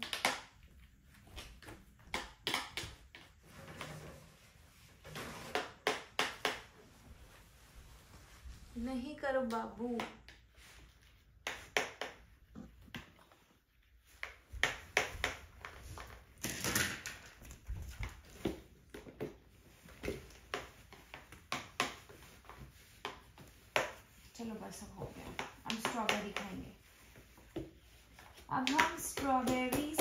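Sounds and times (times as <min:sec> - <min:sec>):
plastic cups tapping on plastic trays: 0:05.4 - 0:06.8, 0:14.2 - 0:24.0, 0:25.0 - 0:26.8, 0:27.5 - 0:30.0.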